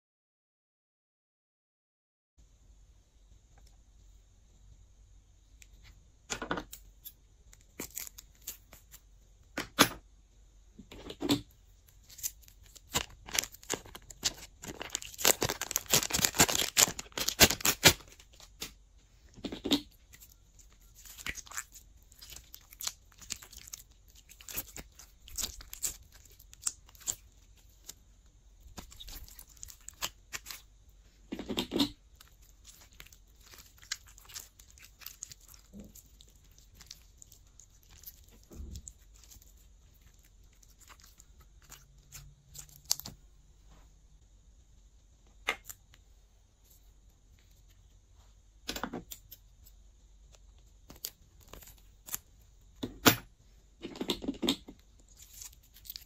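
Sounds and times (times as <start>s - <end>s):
slime squishing with sticky pops: 11.0s - 18.8s, 19.4s - 43.2s, 50.2s - 52.8s.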